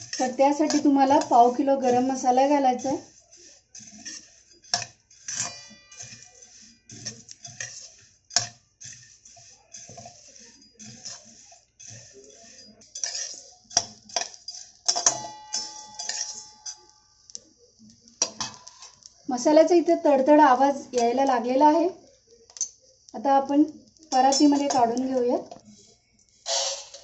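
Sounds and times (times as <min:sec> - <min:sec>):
metal spatula scraping spices in pan: 0:00.0 - 0:27.0
metal pan ringing from knocks: 0:05.4 - 0:06.2, 0:14.9 - 0:16.8.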